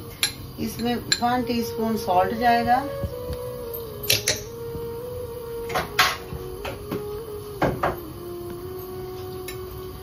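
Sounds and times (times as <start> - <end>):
steady hum: 0.0 - 10.0
spoon and container clinks: 0.1 - 1.4, 4.0 - 4.5.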